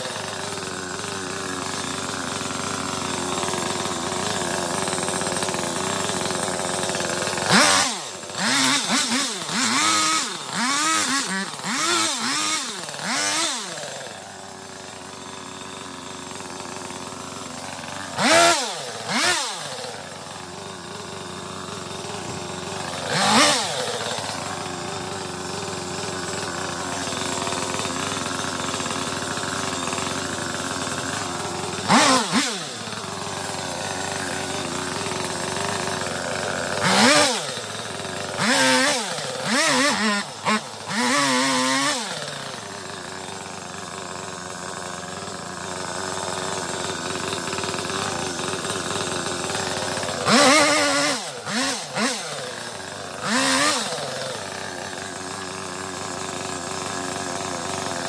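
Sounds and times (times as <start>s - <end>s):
chainsaw idling and revving: 0.0s - 58.0s.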